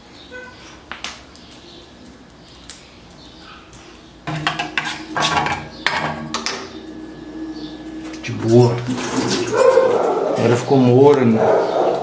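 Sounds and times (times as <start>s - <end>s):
pots clattering in a sink: 4.3s - 10.2s.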